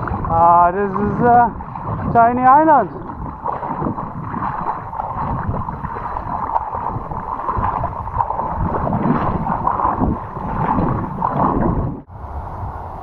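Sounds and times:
feet wading through shallow water: 0.0s - 12.1s.

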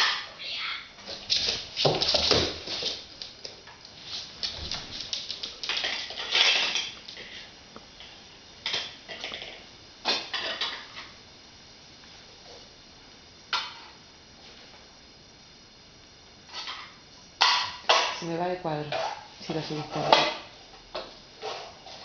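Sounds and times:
dog claws clicking on hard floor: 1.3s - 7.2s.

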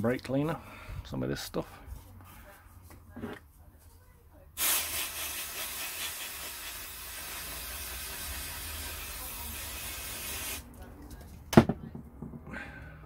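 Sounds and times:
aerosol can spraying hiss: 4.6s - 10.6s.

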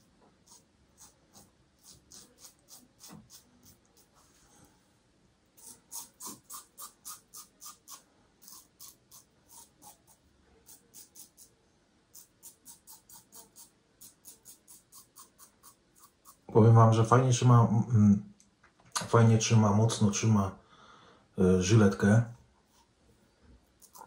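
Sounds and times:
razor scraping stubble: 0.4s - 4.2s, 5.6s - 11.6s, 12.2s - 16.5s, 23.8s - 24.0s.

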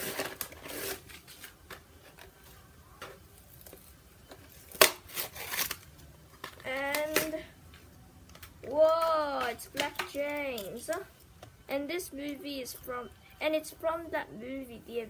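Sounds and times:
packaging rustling and scraping: 0.0s - 7.3s
child's drawn-out voice: 6.6s - 7.6s, 8.6s - 11.1s, 11.7s - 15.0s.

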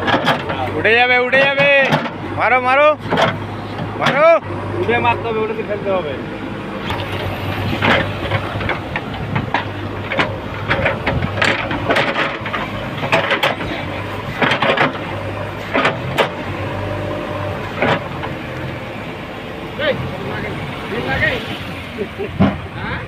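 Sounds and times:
diesel engine running: 0.0s - 23.0s
backhoe bucket knocks and scrapes: 6.9s - 16.4s.

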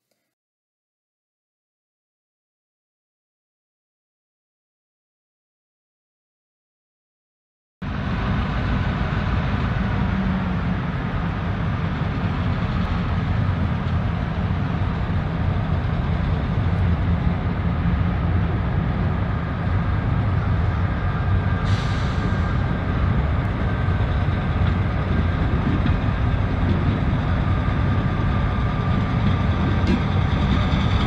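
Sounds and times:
diesel locomotive rumbling: 7.8s - 31.0s
short hiss: 21.6s - 22.4s.

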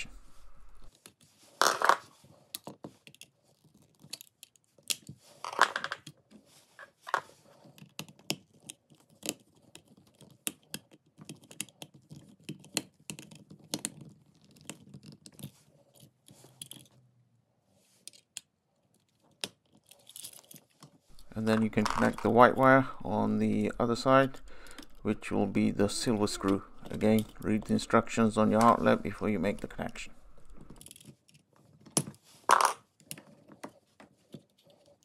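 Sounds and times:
hand tools clicking and scraping: 19.7s - 31.4s.

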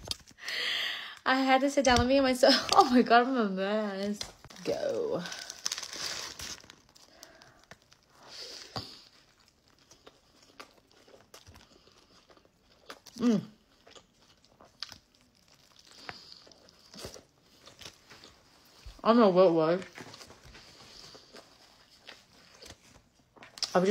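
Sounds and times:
paper wrapper crinkling: 4.0s - 11.6s, 14.7s - 19.0s
biting and chewing: 5.5s - 19.0s.

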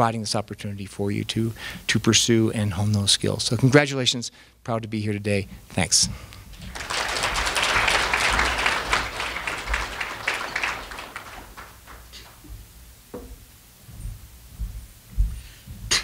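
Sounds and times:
audience applauding: 6.5s - 12.5s.

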